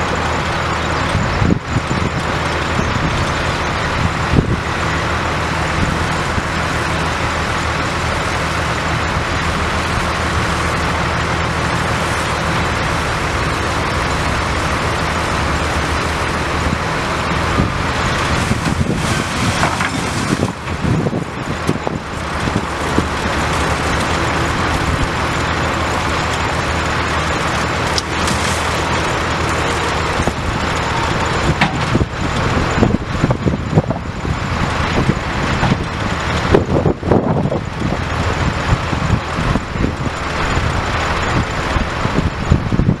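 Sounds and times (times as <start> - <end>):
diesel truck engine running: 0.0 - 43.0
knocks and clatter: 18.4 - 23.2, 30.2 - 32.1.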